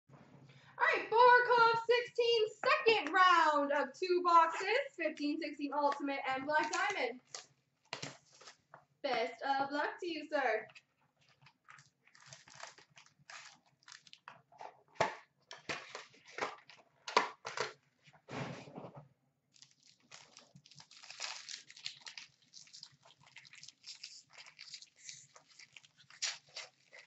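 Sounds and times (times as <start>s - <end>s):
card wrappers crinkling: 6.6s - 8.7s, 10.7s - 14.6s, 19.6s - 27.0s.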